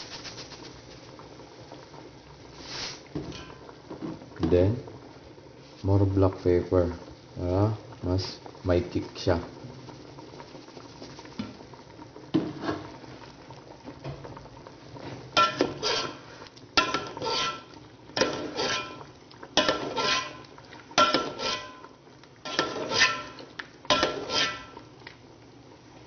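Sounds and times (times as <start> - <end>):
sauce simmering: 0.0 - 26.0
metal ladle clinking on pot: 15.4 - 16.2, 16.8 - 20.4, 21.0 - 21.9, 22.5 - 24.8.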